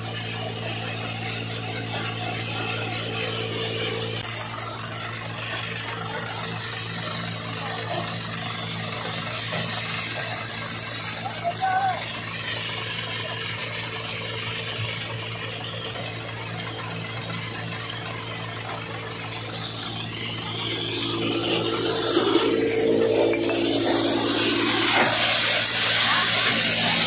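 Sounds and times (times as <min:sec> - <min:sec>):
tractor diesel engine running: 0:00.0 - 0:27.0
thresher rushing hiss: 0:18.5 - 0:27.0.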